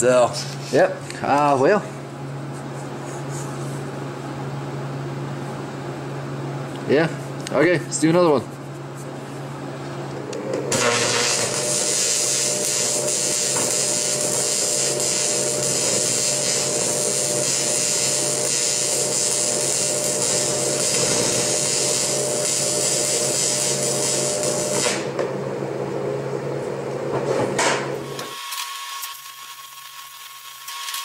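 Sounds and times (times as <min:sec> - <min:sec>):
welding arc crackling and hissing: 0:10.7 - 0:25.1, 0:28.0 - 0:31.0.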